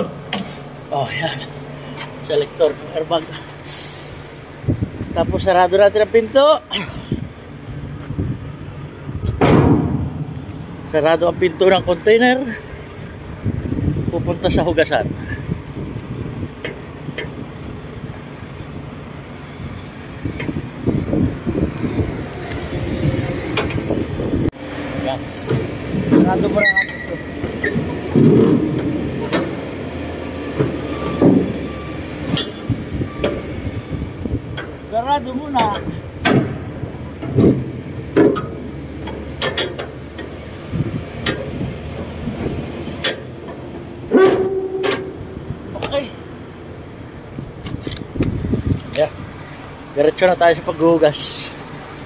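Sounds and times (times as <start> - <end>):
metal clanks and knocks: 0.0 - 0.6, 9.2 - 10.6, 23.3 - 29.8, 30.5 - 33.4, 34.5 - 46.1
heavy truck rumbling: 0.0 - 52.0
empty trailer clattering: 9.3 - 10.5, 25.4 - 31.7, 34.5 - 46.3.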